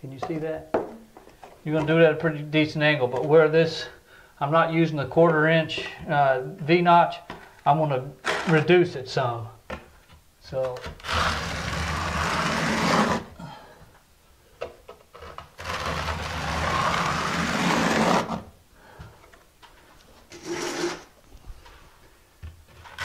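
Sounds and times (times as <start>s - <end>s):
trowel scraping mortar: 11.0s - 13.3s, 15.5s - 18.4s, 20.3s - 21.1s.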